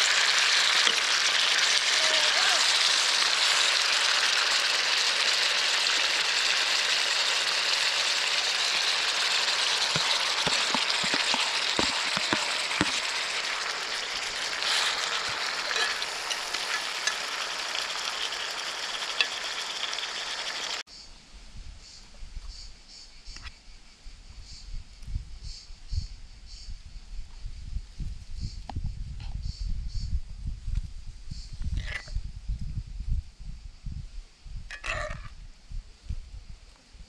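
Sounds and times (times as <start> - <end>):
food sizzling in skillet: 0.0 - 20.8.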